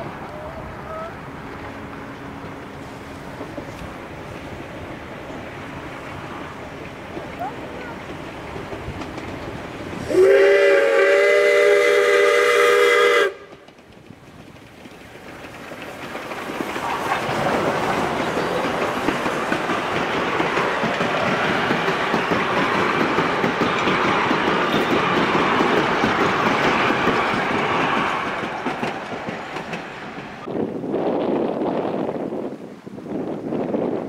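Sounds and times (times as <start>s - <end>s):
wheels clicking over rail joints: 0.0s - 10.2s, 13.3s - 30.5s
train rolling past: 0.0s - 34.0s
steam locomotive whistle: 10.0s - 13.6s.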